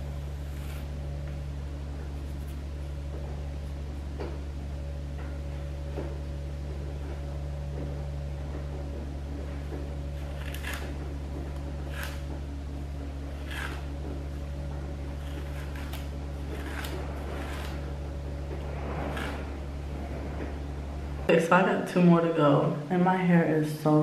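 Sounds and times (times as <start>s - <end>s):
steady low hum: 0.0s - 24.0s
comb rustling through hair: 0.4s - 1.0s, 10.2s - 12.4s, 13.3s - 14.4s, 15.1s - 20.4s.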